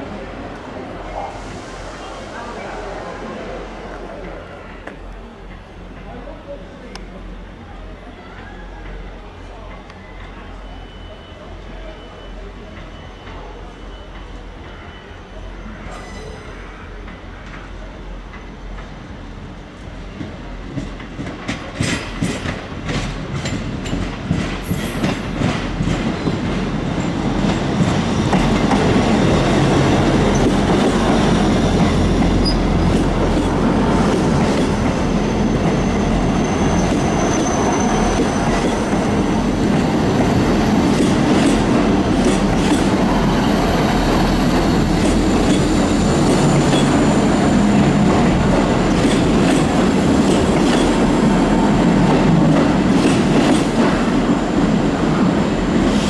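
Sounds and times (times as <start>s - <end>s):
train rumble: 11.6s - 56.0s
high wheel squeal: 12.9s - 16.8s, 30.3s - 32.9s, 34.8s - 39.4s
train wheels clicking over rail joints: 20.2s - 36.0s, 36.8s - 54.2s.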